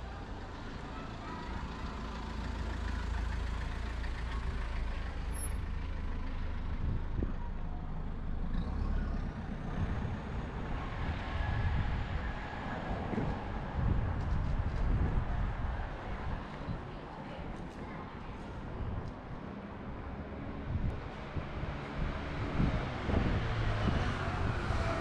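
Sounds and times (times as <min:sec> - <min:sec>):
city street traffic: 0:00.0 - 0:25.0
heavy vehicle engine running low: 0:00.2 - 0:17.2.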